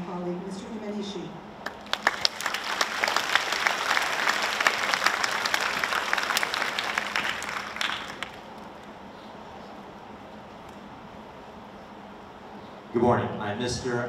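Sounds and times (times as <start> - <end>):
crowd applauding: 1.6 - 8.9.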